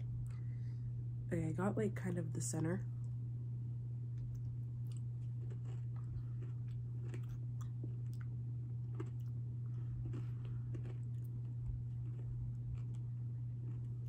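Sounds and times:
low hum: 0.0s - 14.0s
person chewing crunchy food: 4.2s - 14.0s.

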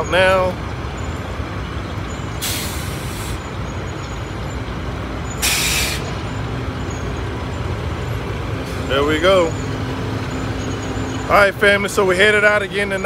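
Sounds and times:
truck diesel engine rumbling: 0.0s - 13.0s
compressed air hisses: 2.4s - 3.4s, 5.4s - 6.1s.

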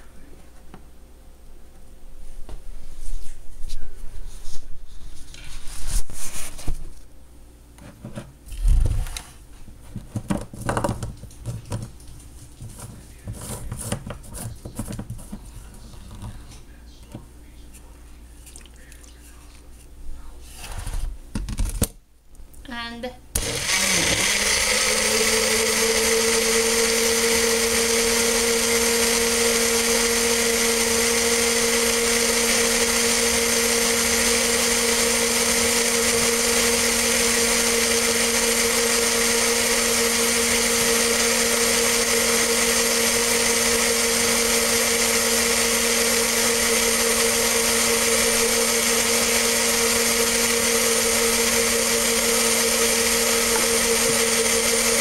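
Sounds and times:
electric blender running: 23.4s - 55.0s.

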